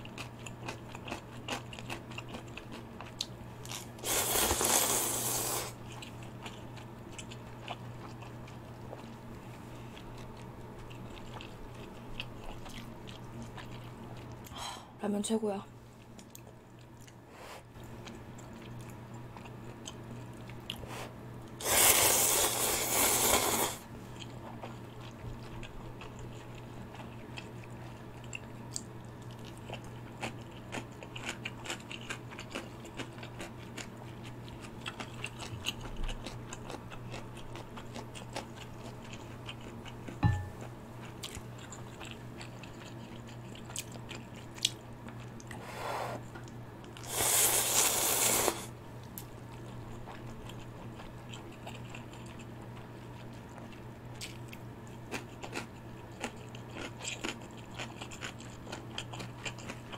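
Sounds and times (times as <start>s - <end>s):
wet chewing: 0.1s - 14.5s, 24.1s - 45.6s, 48.3s - 59.9s
person slurping noodles: 4.0s - 5.8s, 21.6s - 23.8s, 47.0s - 48.7s.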